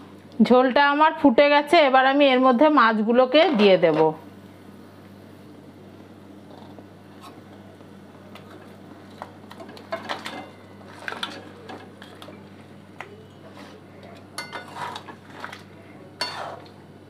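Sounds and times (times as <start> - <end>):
low steady hum: 0.0 - 17.0
spatula scraping a metal pan: 14.4 - 15.5, 16.2 - 16.7.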